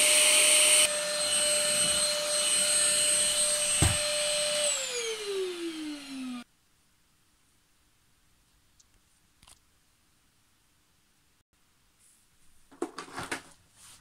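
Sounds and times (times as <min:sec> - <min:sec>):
vacuum cleaner motor whine: 0:00.0 - 0:06.4.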